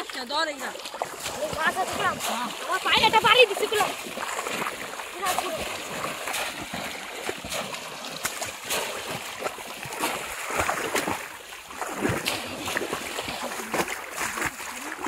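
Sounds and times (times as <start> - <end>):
muddy water splashing: 0.0 - 15.0
people wading through water: 0.0 - 15.0.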